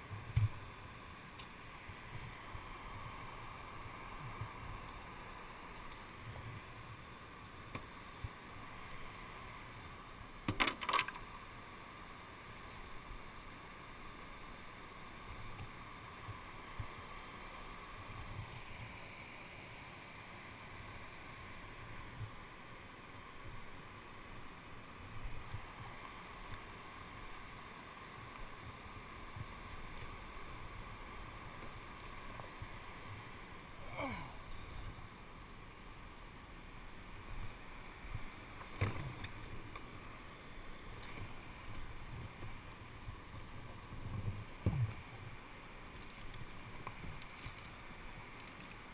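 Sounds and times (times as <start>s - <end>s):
water rushing over rocks: 15.0s - 48.9s.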